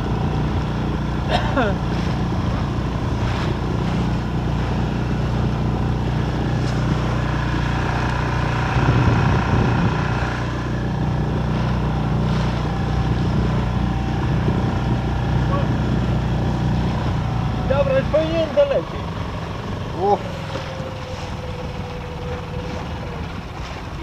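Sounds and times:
outboard motor running: 0.0s - 24.0s
water rushing past hull: 0.0s - 24.0s
wind on microphone: 1.8s - 17.6s.

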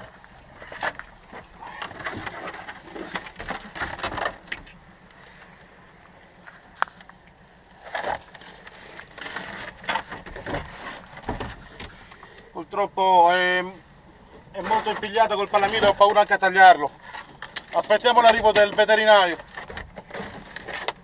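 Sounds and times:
scraping and knocking on boat deck: 9.2s - 12.1s.

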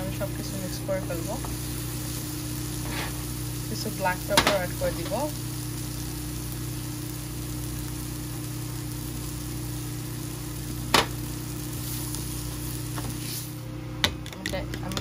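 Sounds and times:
faint hiss of vegetables cooking: 0.0s - 13.7s
low kitchen hum: 0.0s - 15.0s.

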